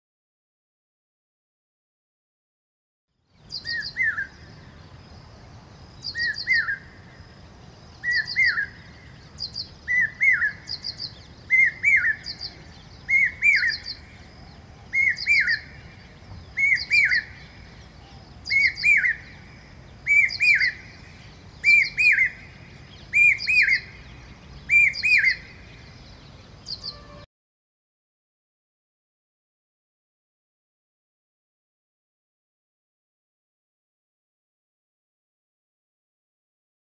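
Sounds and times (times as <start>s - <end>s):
hawk-cuckoo calling: 8.0s - 8.9s, 9.6s - 15.9s, 16.5s - 24.0s, 24.7s - 25.7s, 26.6s - 27.2s.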